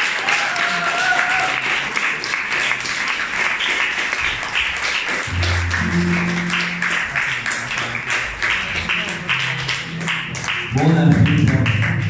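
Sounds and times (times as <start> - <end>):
audience applauding: 0.0 - 12.0
low held bass notes: 5.3 - 7.8.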